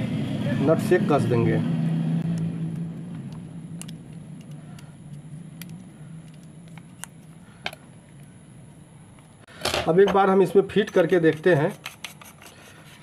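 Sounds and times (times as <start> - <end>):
low hum: 0.0 - 9.6.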